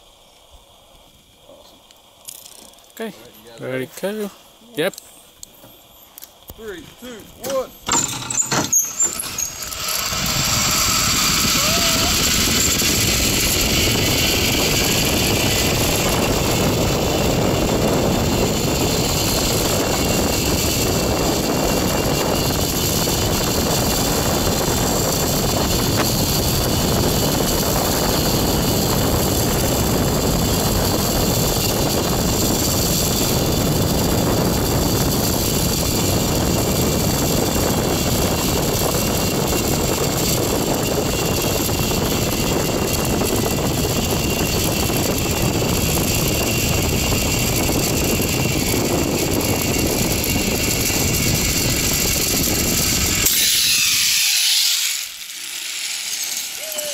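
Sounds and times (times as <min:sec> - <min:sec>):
zipline pulleys whirring on cable: 0:01.3 - 0:06.6, 0:07.2 - 0:56.9
wind rushing over microphone: 0:09.2 - 0:53.3.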